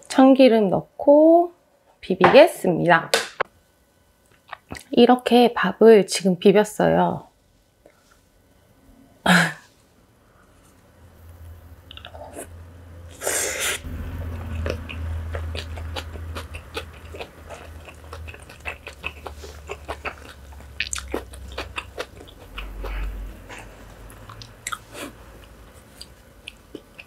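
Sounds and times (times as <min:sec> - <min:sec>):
low hum: 0:07.8 - 0:27.0
crunchy chewing: 0:13.1 - 0:27.0.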